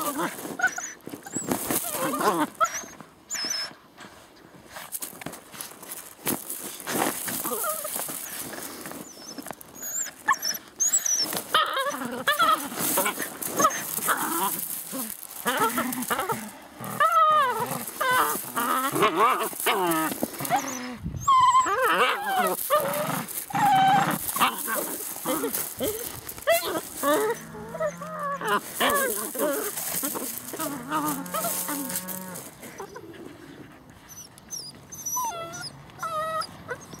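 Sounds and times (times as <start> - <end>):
puppies yipping and whining: 0.0 - 3.8, 6.6 - 37.0.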